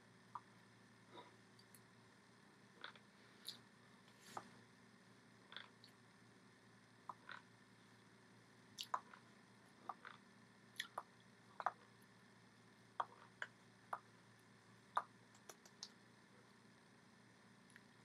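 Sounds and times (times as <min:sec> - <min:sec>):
low steady hiss: 0:00.0 - 0:18.0
mouth smacks and tongue clicks: 0:08.8 - 0:09.2, 0:10.8 - 0:11.8, 0:14.9 - 0:16.0.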